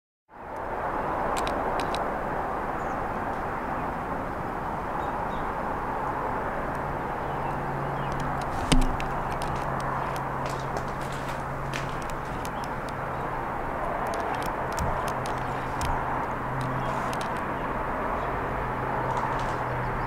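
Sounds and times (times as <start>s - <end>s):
distant road traffic: 0.3s - 20.0s
sharp knock: 8.6s - 9.2s.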